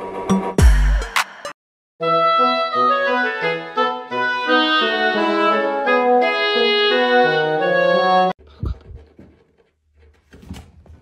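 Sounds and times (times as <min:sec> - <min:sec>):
instrumental background music: 0:00.0 - 0:08.4
soft low thumps: 0:08.5 - 0:09.1.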